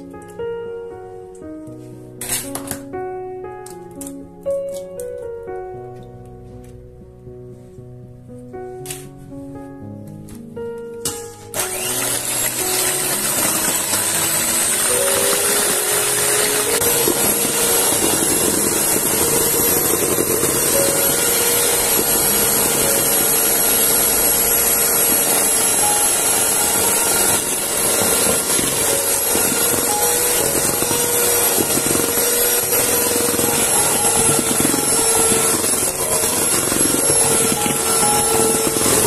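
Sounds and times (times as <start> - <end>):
electric mixer whining: 11.5 - 39.0.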